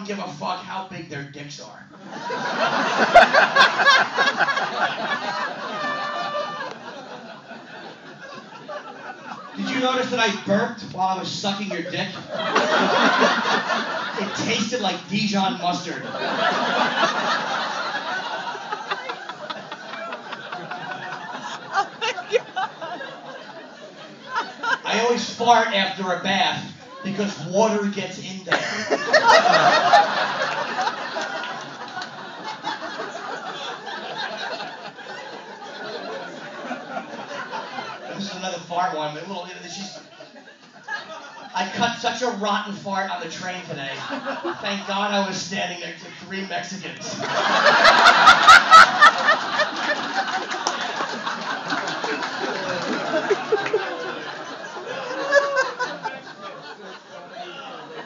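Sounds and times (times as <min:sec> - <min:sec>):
audience laughing: 0:01.9 - 0:25.7, 0:28.4 - 0:42.5, 0:43.4 - 0:45.4, 0:46.1 - 0:58.0.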